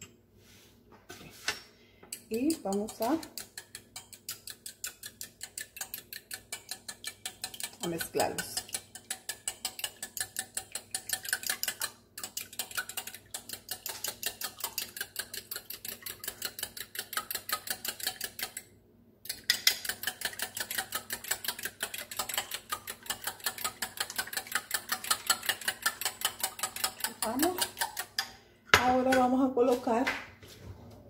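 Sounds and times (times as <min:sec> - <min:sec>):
metal utensil clicking on bowl: 0:02.1 - 0:18.6, 0:19.3 - 0:28.3.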